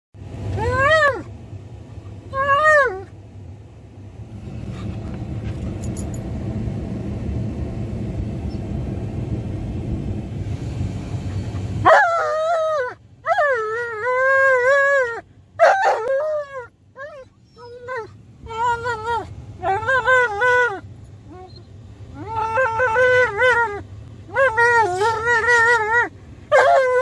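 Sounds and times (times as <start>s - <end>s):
low steady rumble: 0.2s - 27.0s
dog howling and whining: 0.4s - 1.3s, 2.3s - 3.2s, 11.4s - 27.0s.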